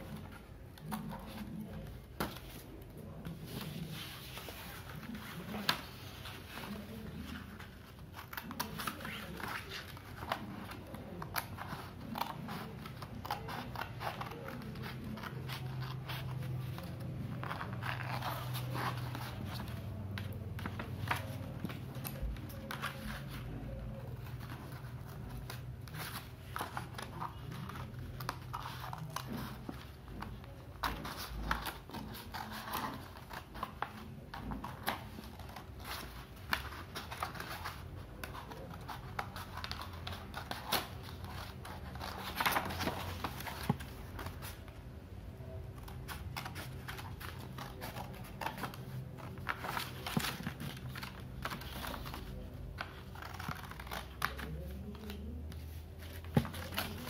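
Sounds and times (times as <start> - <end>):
paper rustling: 0.0 - 44.8, 45.4 - 57.0.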